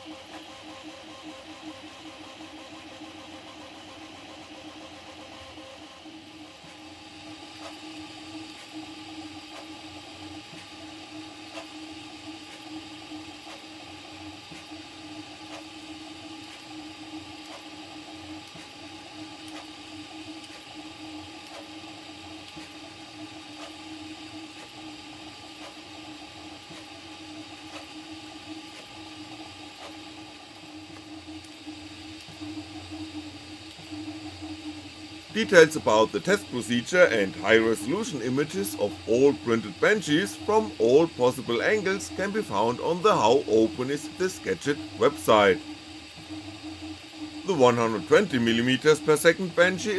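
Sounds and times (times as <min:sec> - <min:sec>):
printer motors and fans humming: 0:00.0 - 0:49.9.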